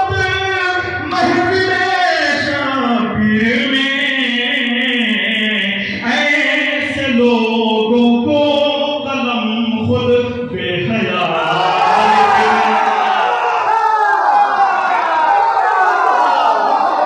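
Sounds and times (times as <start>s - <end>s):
man singing through a microphone: 0.0s - 13.0s.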